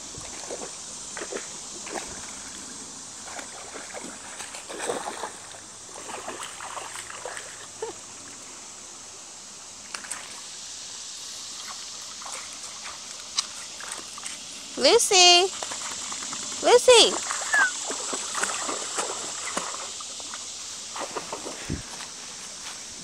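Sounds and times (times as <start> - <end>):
creek water running over stones: 0.0 - 23.0
dog splashing through water: 3.2 - 7.9, 11.6 - 14.4, 15.5 - 21.7.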